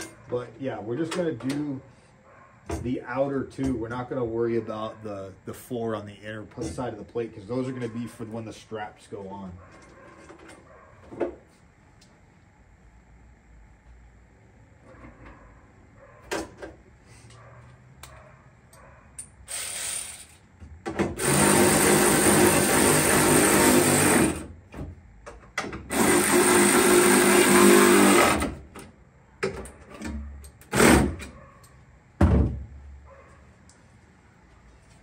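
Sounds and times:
power drill running: 0:19.5 - 0:20.4, 0:21.2 - 0:24.4, 0:25.9 - 0:28.5, 0:30.7 - 0:31.2.

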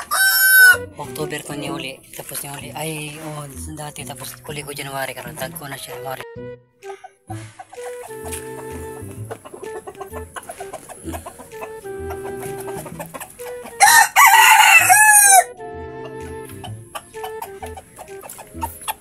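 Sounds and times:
rooster crowing: 0:00.0 - 0:00.8, 0:13.6 - 0:15.6
soft background music: 0:00.0 - 0:19.0.

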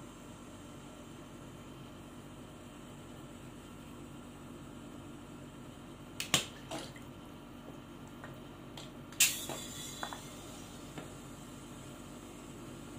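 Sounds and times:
short sharp hiss of gas: 0:09.2 - 0:10.9.

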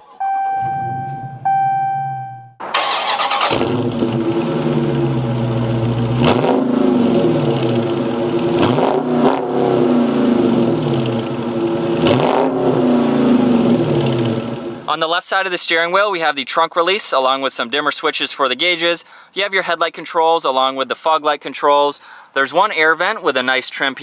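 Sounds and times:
steady high tone: 0:00.0 - 0:02.6
car engine starting and revving: 0:02.6 - 0:14.9.

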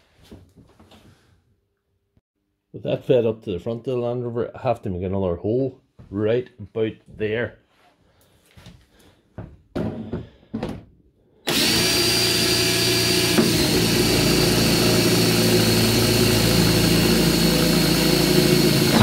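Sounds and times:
drill whining through plastic: 0:11.5 - 0:19.0.

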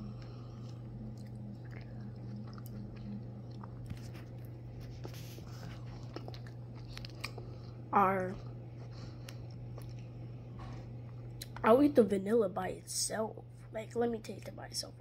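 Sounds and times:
person chewing grapes: 0:00.0 - 0:11.6
steady low hum: 0:00.0 - 0:15.0.

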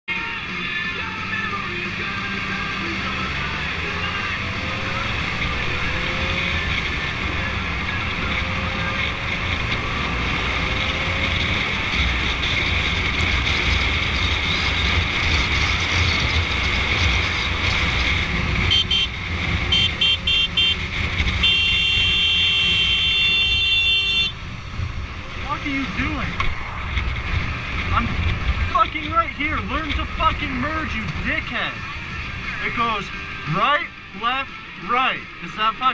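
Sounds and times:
motorcycle engine: 0:00.7 - 0:35.3
horn beeping: 0:18.6 - 0:24.4
wind rush: 0:24.6 - 0:28.8.

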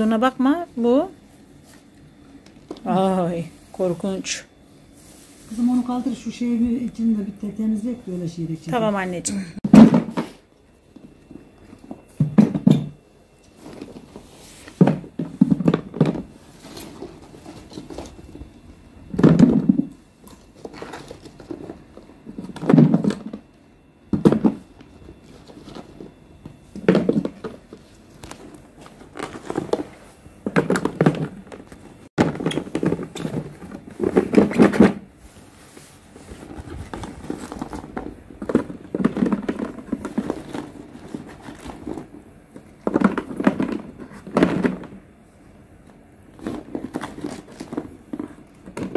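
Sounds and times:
vegetables thunking into plastic jar: 0:32.2 - 0:35.0.

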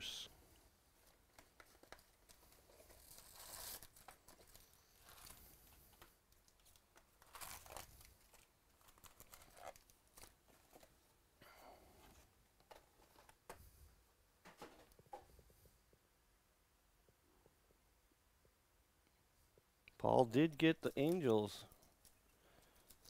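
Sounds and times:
foil packs crinkling: 0:01.4 - 0:10.9.

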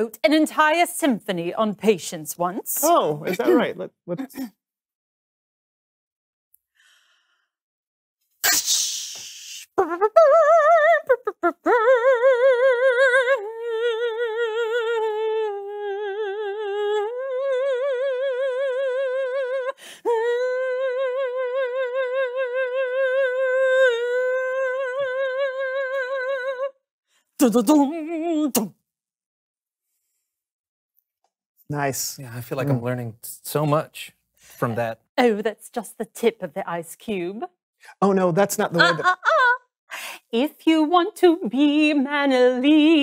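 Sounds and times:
woman singing wordless melody: 0:09.8 - 0:26.8, 0:27.4 - 0:28.7, 0:40.3 - 0:43.0.

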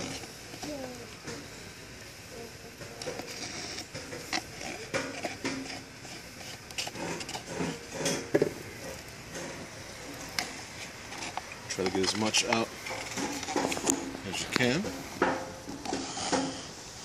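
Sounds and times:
putty knife scraping cup: 0:03.0 - 0:08.3, 0:15.7 - 0:16.7.

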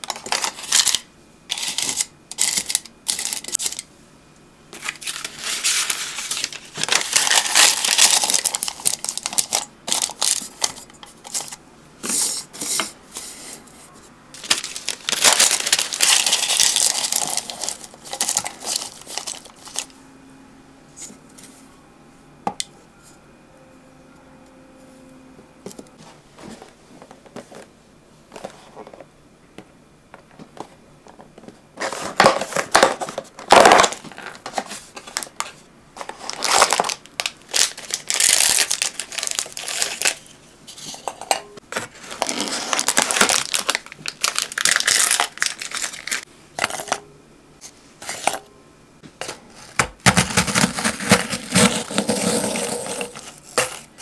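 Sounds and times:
cookies being crushed: 0:00.0 - 0:03.8, 0:04.8 - 0:11.6, 0:14.4 - 0:19.9, 0:31.9 - 0:35.4, 0:36.0 - 0:40.3, 0:41.8 - 0:46.8, 0:49.6 - 0:54.0.

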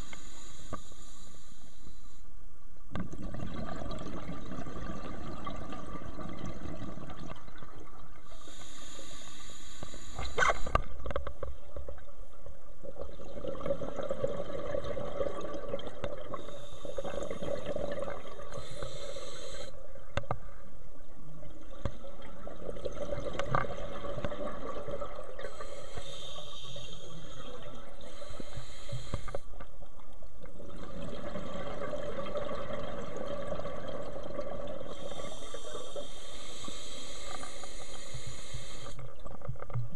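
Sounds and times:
regulator breathing hiss: 0:00.0 - 0:02.3, 0:08.3 - 0:10.7, 0:16.4 - 0:17.4, 0:18.5 - 0:19.8, 0:25.4 - 0:27.4, 0:28.0 - 0:29.4, 0:34.9 - 0:39.0
underwater bubbling: 0:02.8 - 0:39.9.

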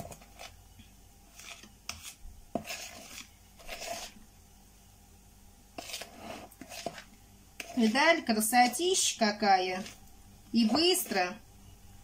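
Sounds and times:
spoon scraping batter in bowl: 0:00.0 - 0:00.6, 0:01.2 - 0:04.2, 0:05.7 - 0:11.4.

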